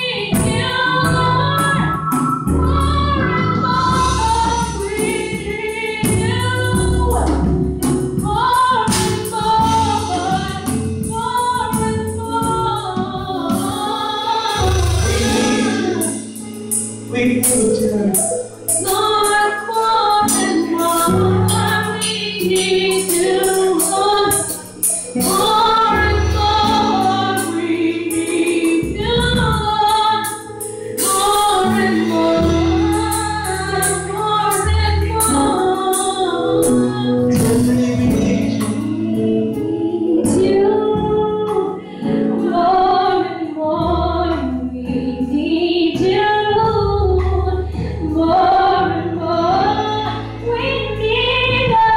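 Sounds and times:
women singing gospel song: 0.0s - 2.1s, 2.7s - 7.6s, 8.2s - 16.4s, 17.2s - 30.4s, 31.0s - 51.9s
band accompaniment with bass: 0.0s - 51.9s.

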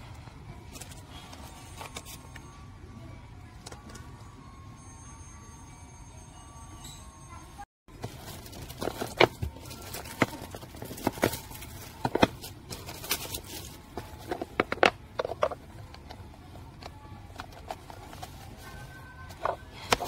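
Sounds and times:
plastic wrap crinkling: 7.9s - 15.5s.

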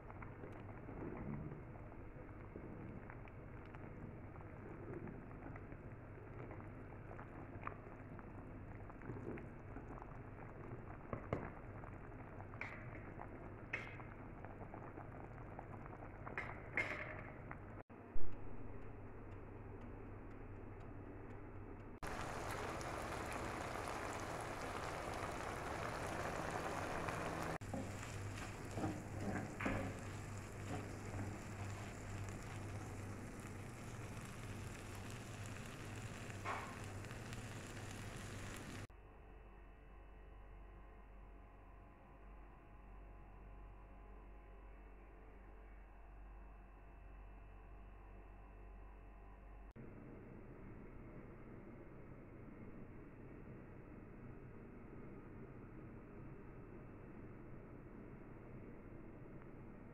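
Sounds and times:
soup bubbling in a pot: 0.0s - 17.8s, 22.0s - 38.9s
meat frying in a pan: 0.0s - 18.1s, 22.0s - 38.9s
stirring knocks: 22.0s - 38.6s
sharp pops: 22.0s - 38.9s.

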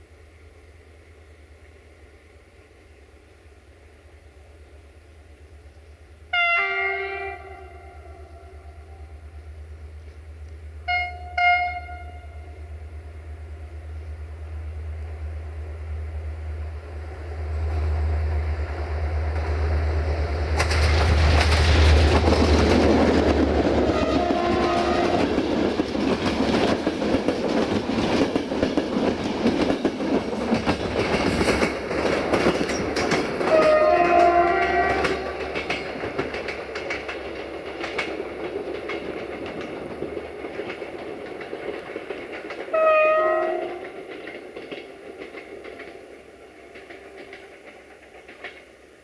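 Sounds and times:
locomotive engine droning: 0.0s - 26.4s, 30.8s - 49.0s
locomotive air horn blasts: 6.3s - 8.7s, 10.9s - 12.6s, 23.9s - 25.3s, 33.5s - 35.3s, 42.7s - 43.8s
train wheels clattering: 18.3s - 49.0s.

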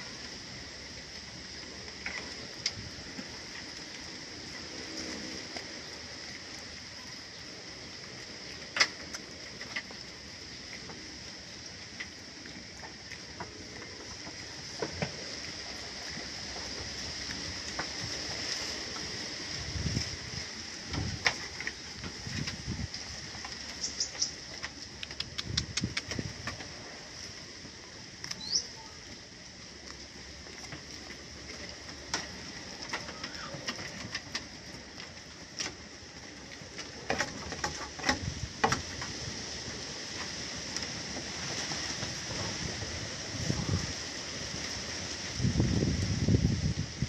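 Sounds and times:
goats chewing: 8.0s - 45.4s
short high ticks: 23.8s - 26.2s.

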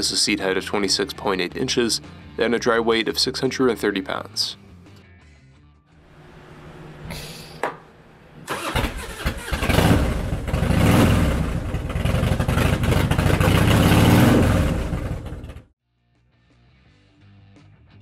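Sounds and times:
motorcycle engine revving: 8.4s - 15.7s.

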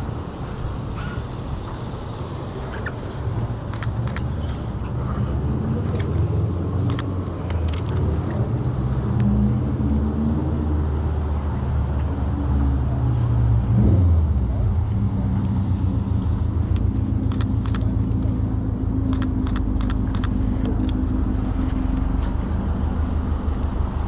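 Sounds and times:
cars driving: 0.0s - 24.0s
sharp clicks: 6.8s - 8.1s, 19.1s - 21.0s.

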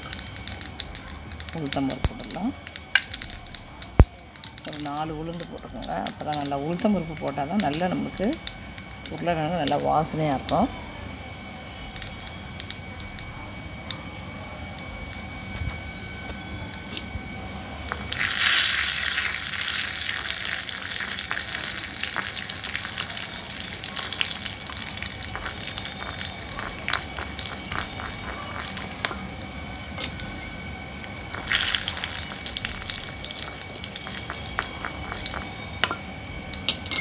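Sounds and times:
seeds sizzling in hot oil: 0.0s - 37.0s
spoon stirring in pot: 24.4s - 37.0s.

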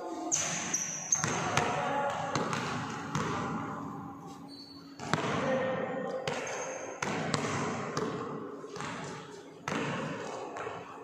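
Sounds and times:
sneakers squeaking: 0.2s - 10.9s
basketball bouncing on wooden floor: 1.1s - 3.6s, 6.3s - 8.2s, 8.8s - 10.8s.

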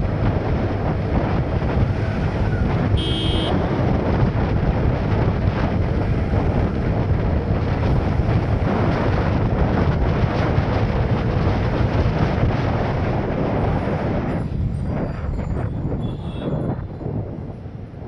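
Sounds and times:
motorcycle engine: 0.0s - 13.6s
road noise: 0.0s - 18.0s
wind rushing over microphone: 0.0s - 18.0s.

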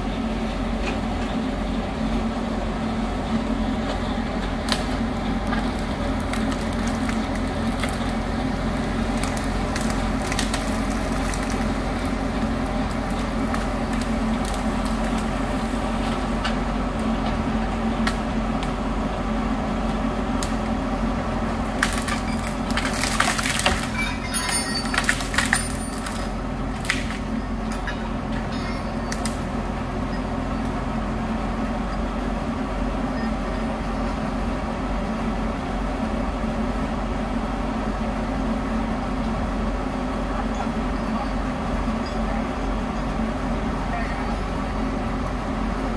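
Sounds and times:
machinery engines running: 0.0s - 45.9s
wood cracking and splintering: 4.5s - 17.2s, 21.4s - 27.8s.

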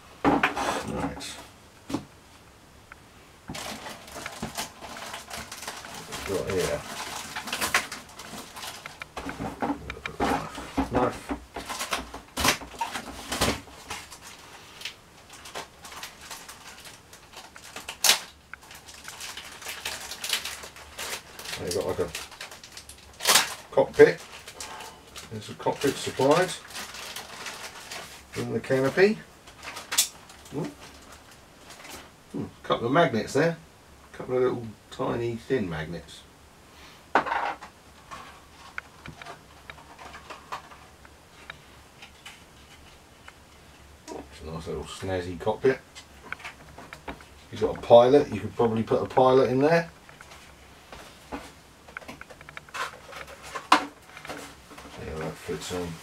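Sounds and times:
plastic bag crinkling: 3.5s - 32.2s, 44.1s - 56.0s
sharp plastic crackle: 3.5s - 32.4s, 37.6s - 56.0s.

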